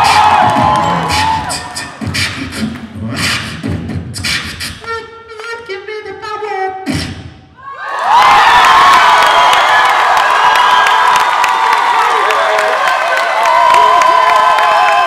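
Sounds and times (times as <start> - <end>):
held pitched vocal notes: 0.0 - 5.3
beatboxing percussive mouth sounds: 0.0 - 7.5.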